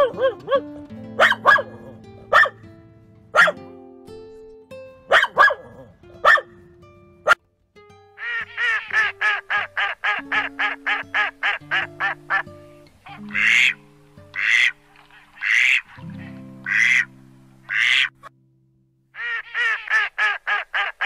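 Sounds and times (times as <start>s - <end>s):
background music: 0.0s - 18.3s
duck quacking: 1.2s - 2.6s, 8.2s - 18.3s, 19.2s - 21.0s.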